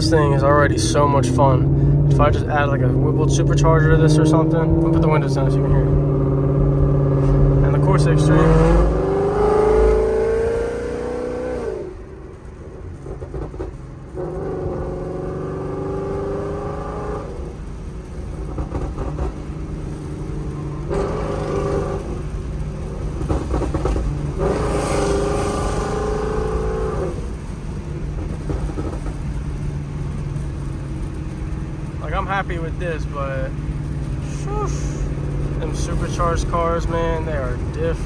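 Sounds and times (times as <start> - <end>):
low exhaust rumble: 0.0 - 10.1, 26.1 - 38.0
car engine revving: 0.0 - 12.1, 12.9 - 38.0.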